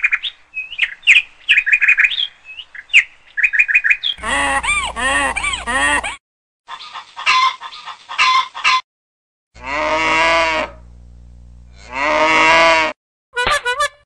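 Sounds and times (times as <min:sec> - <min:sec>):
drawn-out pitched bird call: 0:00.1 - 0:06.2
parakeet calling: 0:04.1 - 0:06.2
low hum: 0:04.2 - 0:06.2, 0:10.6 - 0:11.9.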